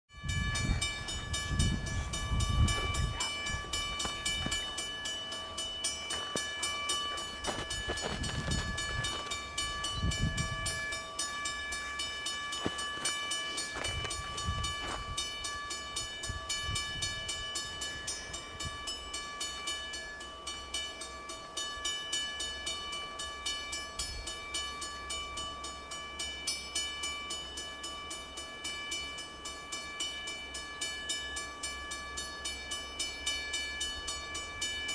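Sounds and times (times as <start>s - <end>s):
locomotive engine rumble: 0.2s - 19.7s.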